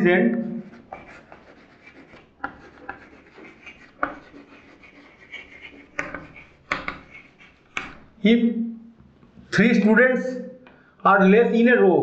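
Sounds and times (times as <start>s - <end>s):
chalk scratching on blackboard: 0.4s - 8.2s.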